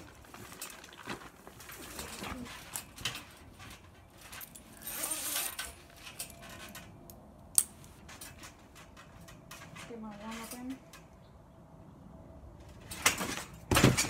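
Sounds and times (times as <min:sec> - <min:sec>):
trampoline springs jingling: 0:00.0 - 0:07.0, 0:07.7 - 0:11.2
trampoline mat thumps: 0:13.2 - 0:14.0.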